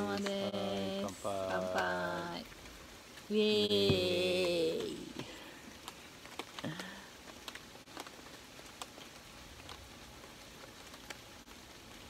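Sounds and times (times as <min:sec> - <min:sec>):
person murmuring: 0:00.0 - 0:02.4
raindrops pattering on a tarp: 0:00.0 - 0:12.0
soft steady hiss: 0:00.0 - 0:12.0.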